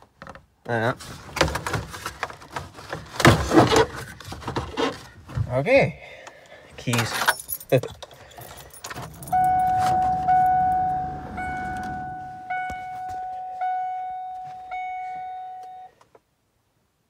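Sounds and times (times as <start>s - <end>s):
keys jingling in ignition: 6.9s - 13.6s
dashboard warning chime dinging: 8.8s - 16.0s.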